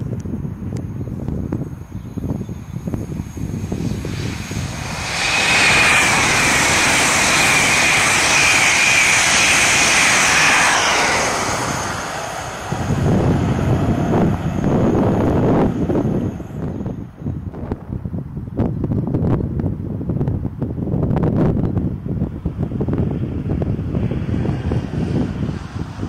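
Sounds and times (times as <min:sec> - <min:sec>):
high steady whine: 0:00.0 - 0:18.0
wind buffeting microphone: 0:00.0 - 0:26.0
train passing at high speed: 0:01.6 - 0:18.2, 0:22.1 - 0:26.0.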